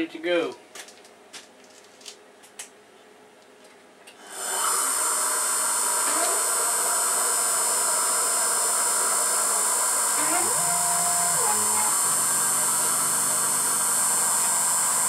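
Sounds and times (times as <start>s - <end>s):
milling machine spindle whine: 4.3s - 15.0s
axis motor rising tone: 4.5s - 15.0s.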